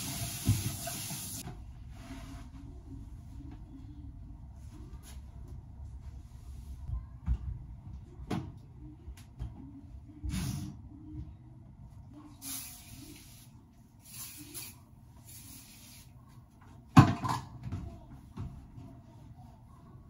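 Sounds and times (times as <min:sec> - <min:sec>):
spray bottle hissing: 0:12.4 - 0:16.1.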